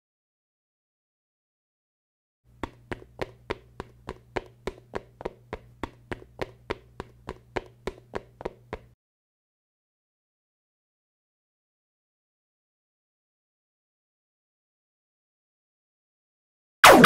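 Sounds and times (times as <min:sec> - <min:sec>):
steady low hum: 0:02.5 - 0:08.9
footsteps clicking: 0:02.5 - 0:09.0.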